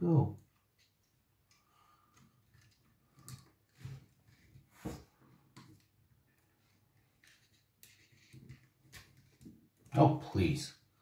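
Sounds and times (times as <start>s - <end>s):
faint clicks of small parts handled: 0.5s - 4.5s.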